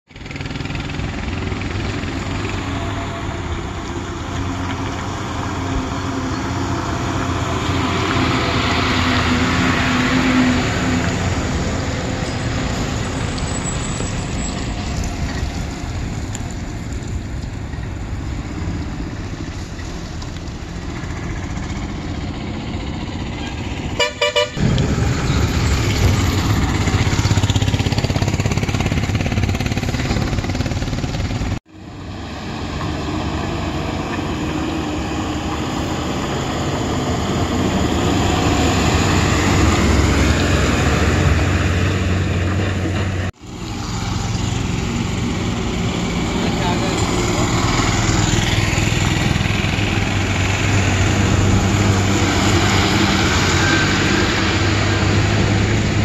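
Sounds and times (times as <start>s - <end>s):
diesel trucks passing: 0.1s - 56.0s
short horn toot: 23.4s - 24.7s.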